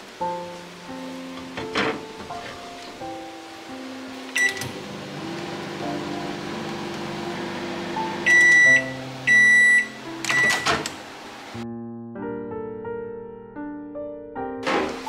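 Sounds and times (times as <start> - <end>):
background music: 0.0 - 15.0
microwave oven humming: 4.1 - 11.6
microwave beeps: 4.3 - 4.8, 8.1 - 10.9.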